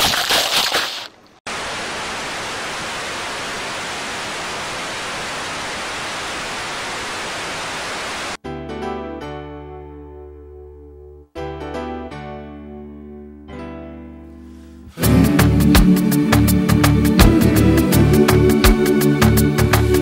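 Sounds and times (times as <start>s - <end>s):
static hiss: 1.5s - 8.4s.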